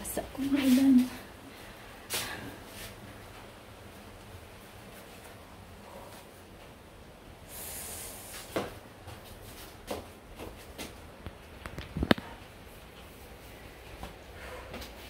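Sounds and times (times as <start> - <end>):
short hiss: 7.5 - 8.6.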